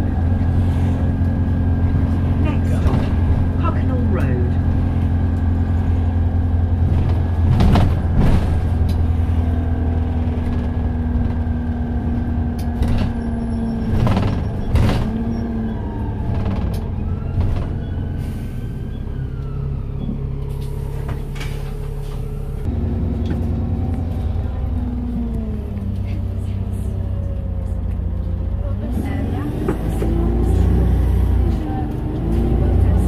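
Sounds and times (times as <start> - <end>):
knocks and rattles of bus body: 0.0 - 18.2, 19.9 - 22.4
diesel engine drone: 0.0 - 33.0
road noise: 0.0 - 33.0.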